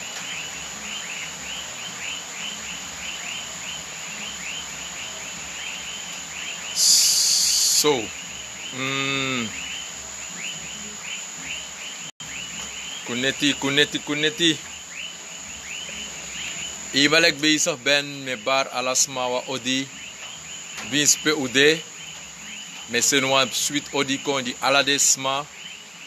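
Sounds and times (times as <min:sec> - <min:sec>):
loud hiss: 0:00.0 - 0:11.7
insects chirping: 0:00.0 - 0:26.0
steady high whine: 0:00.0 - 0:26.0.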